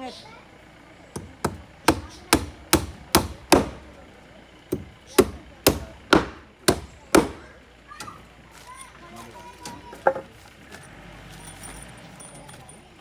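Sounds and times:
hammer striking timber: 0:01.1 - 0:04.0, 0:04.7 - 0:08.2.

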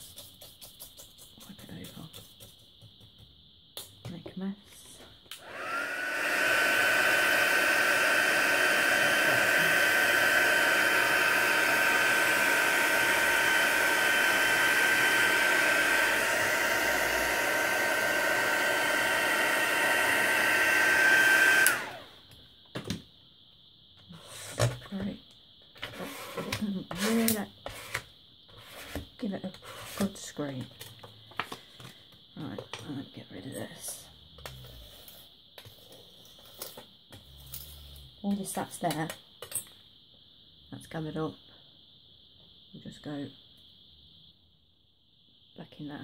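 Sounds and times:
heat gun fan whine: 0:05.3 - 0:22.4.

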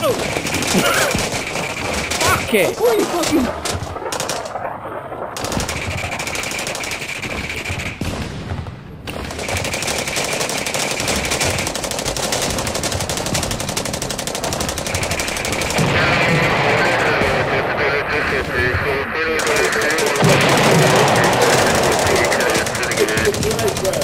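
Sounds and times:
airsoft guns firing bursts: 0:00.0 - 0:04.5, 0:05.4 - 0:08.5, 0:09.1 - 0:17.6, 0:19.4 - 0:24.0.

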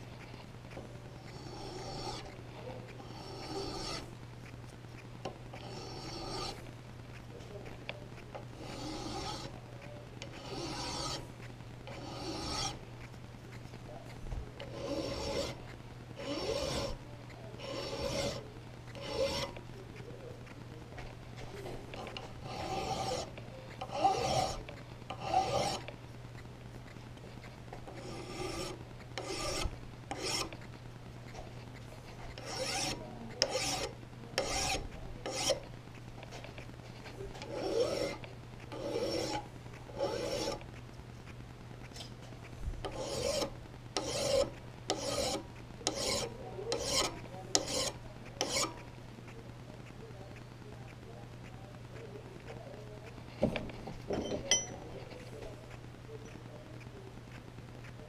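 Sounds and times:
file rasping on steel: 0:01.2 - 0:04.0, 0:05.5 - 0:06.6, 0:08.6 - 0:09.6, 0:10.2 - 0:11.2, 0:11.9 - 0:12.8, 0:14.6 - 0:17.0, 0:17.6 - 0:19.6, 0:21.9 - 0:25.9, 0:27.9 - 0:30.6, 0:32.2 - 0:35.7, 0:36.3 - 0:40.6, 0:42.8 - 0:48.8.

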